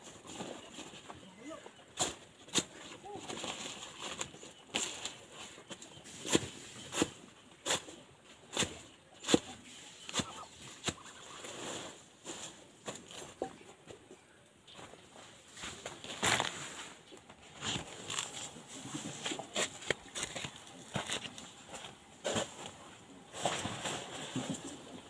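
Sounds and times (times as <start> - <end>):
machete chopping leaves: 8.5 - 9.5.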